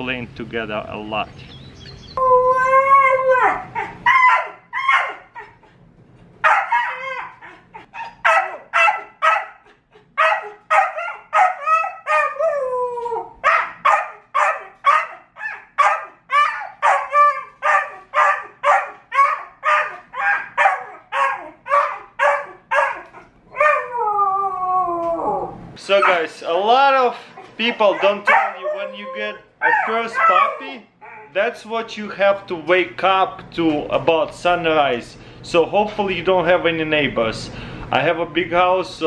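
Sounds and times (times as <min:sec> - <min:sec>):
puppy yowls falling in pitch: 0:02.2 - 0:05.5, 0:06.4 - 0:09.4, 0:10.2 - 0:26.2, 0:27.9 - 0:31.4
puppy yipping: 0:03.4 - 0:05.7, 0:06.4 - 0:12.4, 0:13.4 - 0:23.9, 0:27.4 - 0:31.4.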